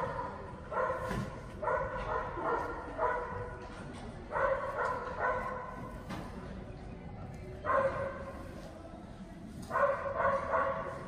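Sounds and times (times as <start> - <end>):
dog barking: 0.0 - 3.5, 4.3 - 5.7, 7.6 - 8.2, 9.7 - 11.0.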